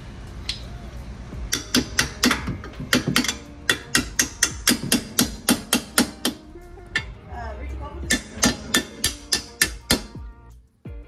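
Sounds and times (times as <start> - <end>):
hammer tapping steel bolt: 1.5 - 6.4, 8.1 - 10.2.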